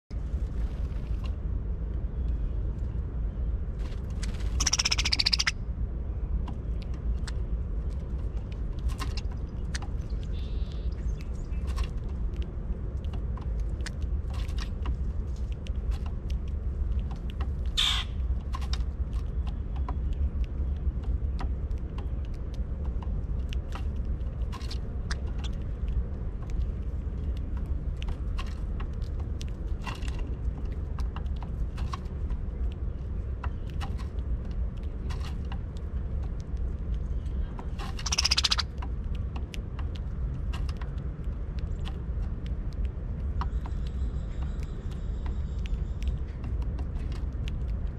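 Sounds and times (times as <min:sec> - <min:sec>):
low rumble: 0:00.1 - 0:47.9
birds chattering calls: 0:04.4 - 0:05.6, 0:37.9 - 0:38.7.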